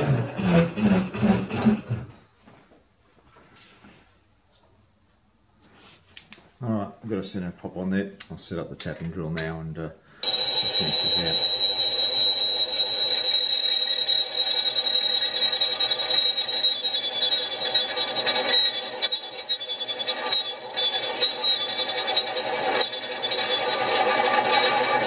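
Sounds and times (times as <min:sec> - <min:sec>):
high-pitched drilling whine: 0:10.2 - 0:25.0
milling machine running: 0:10.2 - 0:25.0.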